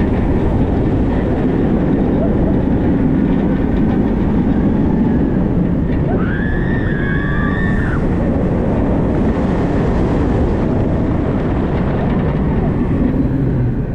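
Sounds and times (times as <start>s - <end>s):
roller coaster rumbling on track: 0.0s - 13.9s
wind on microphone: 0.0s - 13.9s
rider whooping: 6.0s - 8.3s.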